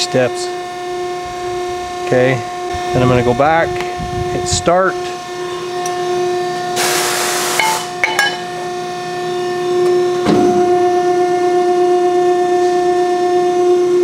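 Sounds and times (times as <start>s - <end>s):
press brake machine hum: 1.0s - 11.9s.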